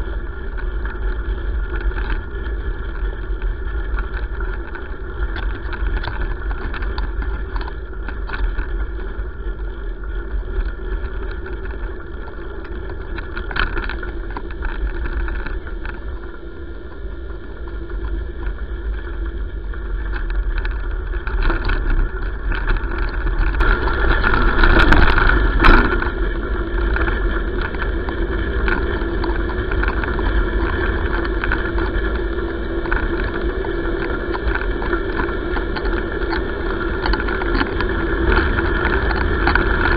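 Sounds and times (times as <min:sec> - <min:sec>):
wheels rolling over gravel: 0:00.0 - 0:39.9.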